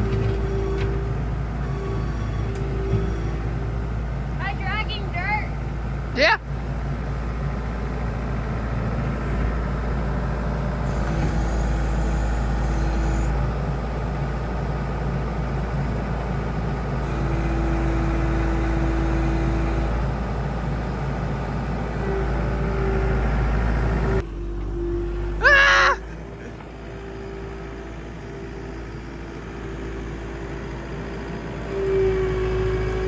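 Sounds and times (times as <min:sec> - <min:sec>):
diesel engine running: 0:00.0 - 0:33.0.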